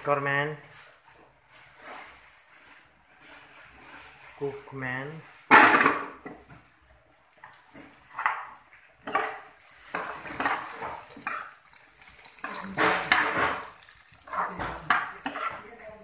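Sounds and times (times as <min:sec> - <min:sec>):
spatula scraping a frying pan: 0:08.0 - 0:16.0
frying sizzle: 0:09.0 - 0:16.0.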